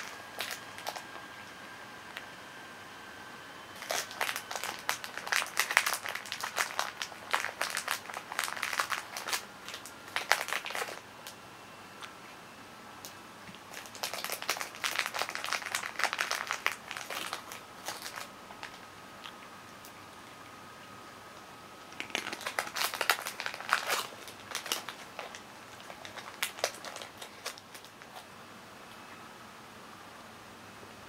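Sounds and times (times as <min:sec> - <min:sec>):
cat crunching dry food: 0:00.0 - 0:01.2, 0:03.8 - 0:11.0, 0:13.6 - 0:19.4, 0:22.0 - 0:28.3.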